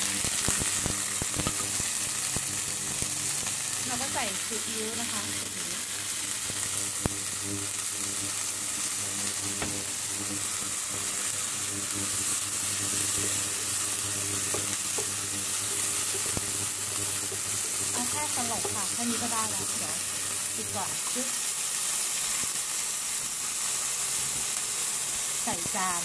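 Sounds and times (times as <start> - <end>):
bean sprouts sizzling in oil: 0.0 - 26.0
spatula tapping pan: 14.5 - 16.6.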